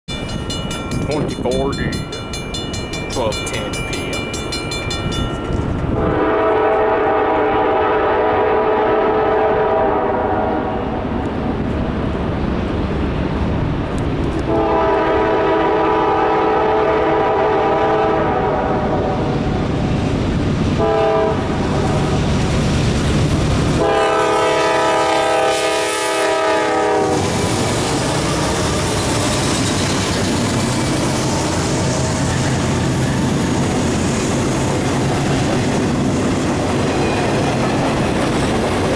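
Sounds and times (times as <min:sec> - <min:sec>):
train wheels clattering on rails: 0:00.1 - 0:07.0, 0:26.6 - 0:38.9
locomotive horn: 0:05.9 - 0:11.0, 0:14.4 - 0:19.6, 0:20.8 - 0:22.2, 0:23.8 - 0:27.5.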